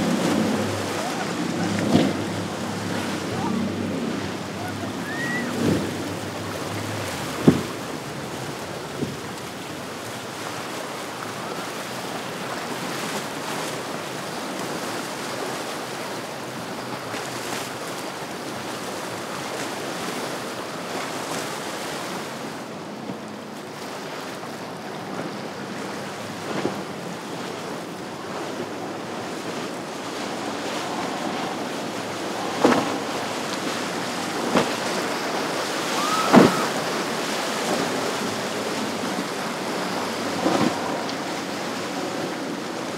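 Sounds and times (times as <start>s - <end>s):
wind buffeting microphone: 0.0s - 10.4s, 24.8s - 42.9s
sea waves rushing and breaking: 0.0s - 42.9s.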